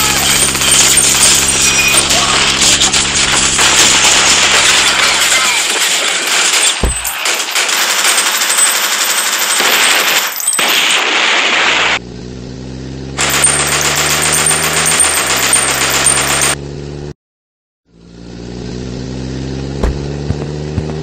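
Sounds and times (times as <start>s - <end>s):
rapid machine-gun fire: 0.0s - 12.0s, 13.2s - 16.6s
low thud: 19.8s - 21.0s.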